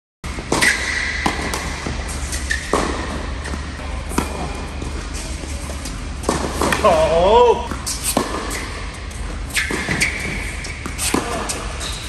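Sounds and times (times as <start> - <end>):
racket hitting tennis ball: 0.3 - 5.2, 5.8 - 12.0
tennis ball bouncing: 0.3 - 11.9.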